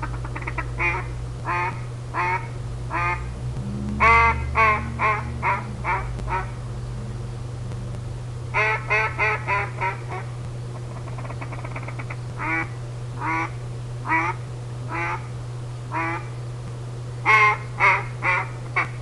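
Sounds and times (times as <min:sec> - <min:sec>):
duck call quacks: 0:00.0 - 0:03.2, 0:04.0 - 0:06.6, 0:08.6 - 0:10.3, 0:11.0 - 0:15.3, 0:15.9 - 0:16.3, 0:17.3 - 0:19.0.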